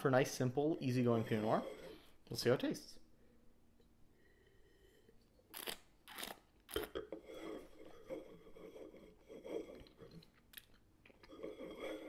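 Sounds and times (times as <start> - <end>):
person slurping wine: 4.7 - 10.3, 11.2 - 12.0.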